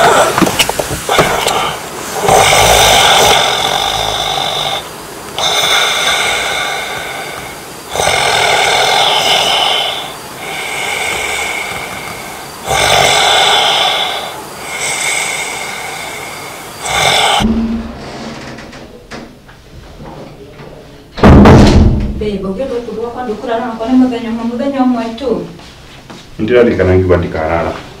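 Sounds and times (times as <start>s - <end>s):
man snoring: 1.1s - 17.5s
soft breath: 1.1s - 17.6s.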